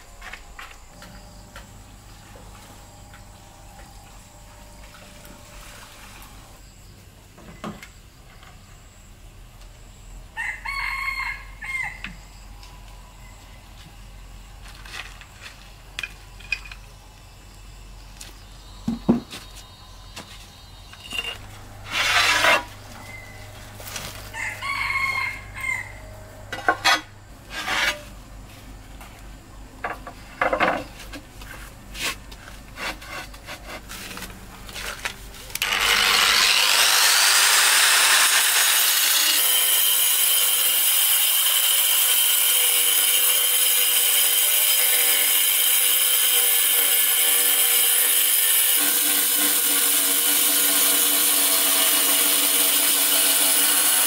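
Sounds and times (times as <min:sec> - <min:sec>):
rooster crowing: 0:10.4 - 0:12.4, 0:24.2 - 0:26.4
angle grinder cutting tile: 0:21.1 - 0:22.7, 0:35.6 - 0:54.0.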